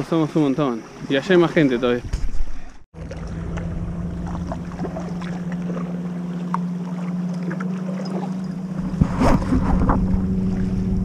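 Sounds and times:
kayak paddling on water: 0.1s - 11.0s
wind rumbling on microphone: 1.8s - 5.8s, 8.7s - 11.0s
steady low hum: 3.0s - 11.0s.

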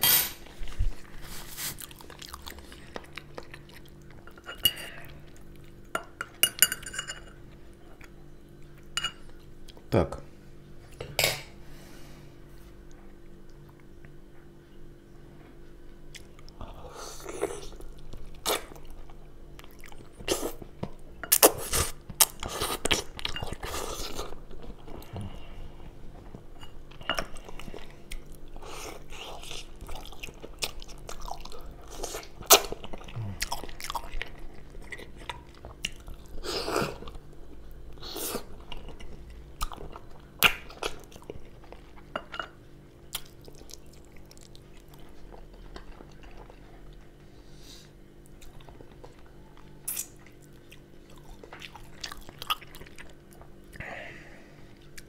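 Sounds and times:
close chewing and biting: 0.9s - 5.9s, 27.3s - 42.1s, 43.1s - 47.2s, 48.3s - 53.8s.

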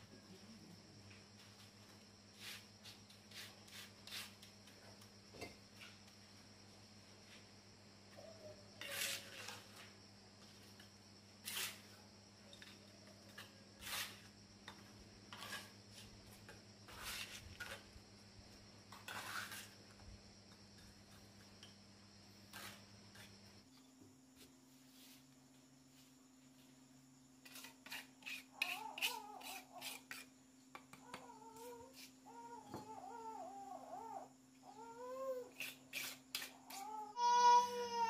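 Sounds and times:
trowel scraping on mortar and bricks: 8.8s - 9.8s, 11.4s - 12.0s, 12.6s - 14.3s, 15.3s - 16.2s, 16.9s - 18.0s, 18.9s - 19.8s, 22.5s - 23.3s, 27.4s - 30.3s, 35.6s - 36.9s.

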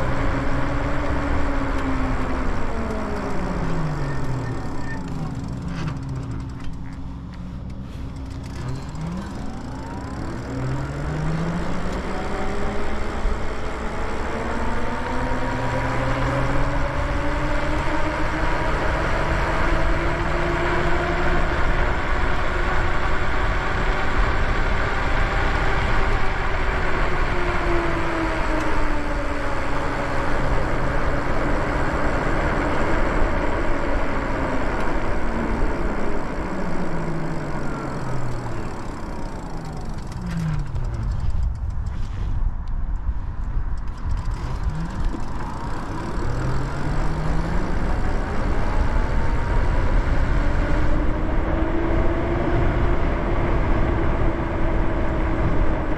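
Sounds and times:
tyre noise: 0.0s - 12.6s
electric motor whining: 0.0s - 41.6s, 43.9s - 55.9s.

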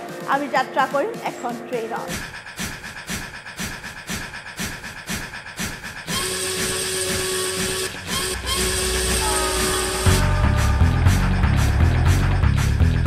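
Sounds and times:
steam locomotive chuffing: 1.9s - 12.5s
hissing steam whistle: 6.1s - 11.6s.

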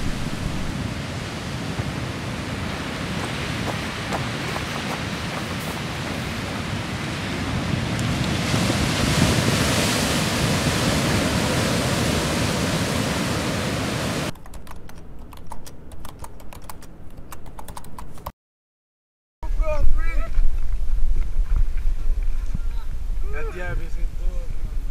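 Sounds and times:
surf breaking on rocks: 0.0s - 14.3s
wind buffeting the microphone: 0.0s - 14.3s, 19.5s - 24.9s
quick irregular clicks: 14.3s - 18.3s.

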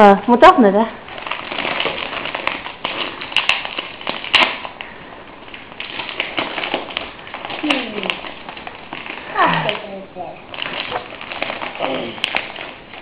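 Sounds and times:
wrapping paper crinkling: 1.0s - 13.0s
sharp paper snaps: 1.3s - 5.0s.

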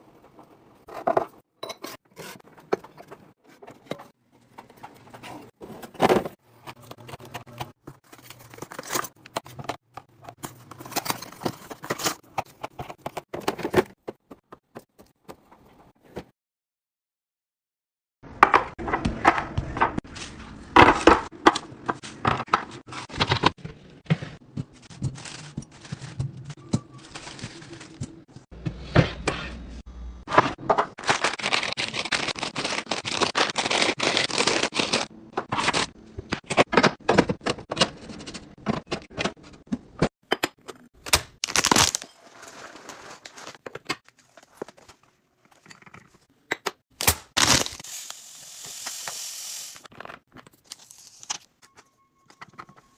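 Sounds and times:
plastic bags crinkling: 41.4s - 43.6s.

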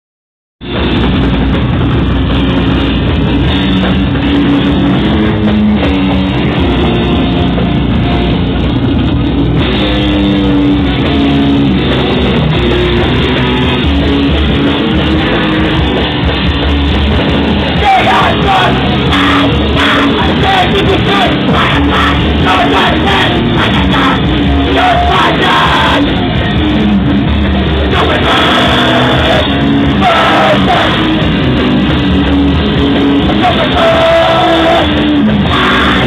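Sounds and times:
punk band playing: 0.6s - 36.0s
shouted vocals: 17.8s - 26.5s, 27.8s - 31.2s, 33.2s - 36.0s.

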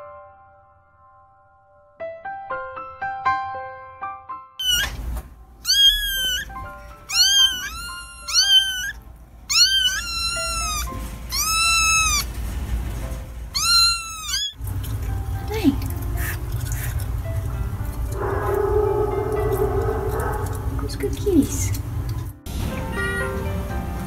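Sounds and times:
kittens meowing: 4.6s - 12.3s, 13.5s - 14.6s.

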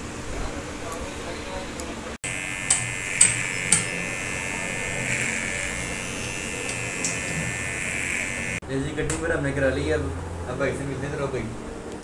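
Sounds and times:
electric hair clipper buzzing: 2.2s - 8.6s
sharp clicks: 2.6s - 4.0s, 6.6s - 7.4s.

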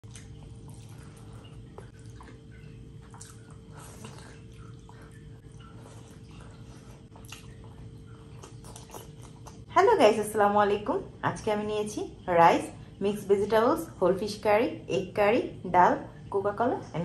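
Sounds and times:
wet chewing and mouth smacks: 0.0s - 9.7s
low steady hum: 0.0s - 17.0s.

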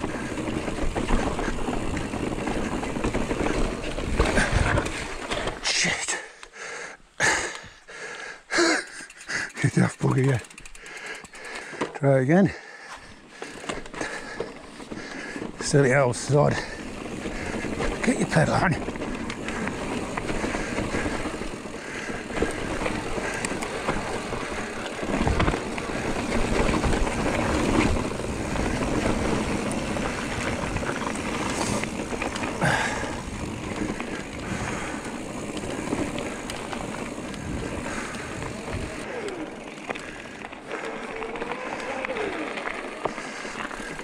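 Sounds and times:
bike knocking and rattling: 0.0s - 5.8s, 8.6s - 44.0s
bike tyres rolling on trail: 0.0s - 44.0s
wind noise: 18.8s - 39.0s.

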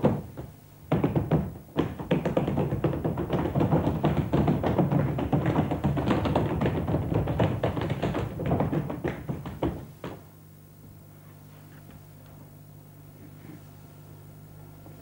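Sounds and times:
fast percussive taps: 0.0s - 10.3s
faint low hum: 0.0s - 15.0s.

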